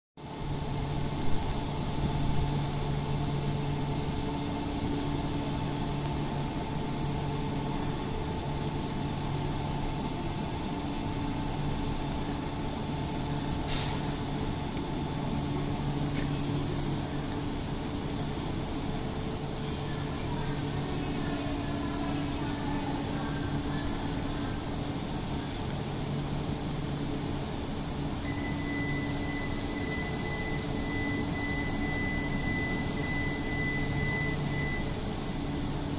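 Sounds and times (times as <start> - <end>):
train equipment humming: 0.2 - 35.9
air release hiss: 13.6 - 14.2.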